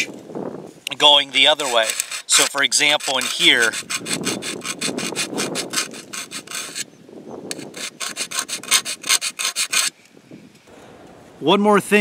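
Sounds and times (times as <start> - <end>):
file rasping on saw teeth: 1.3 - 6.9, 7.5 - 9.9.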